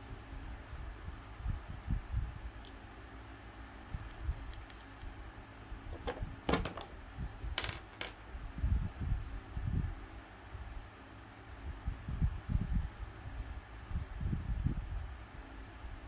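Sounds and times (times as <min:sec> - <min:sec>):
plastic parts clicking and clattering: 0:06.0 - 0:07.0.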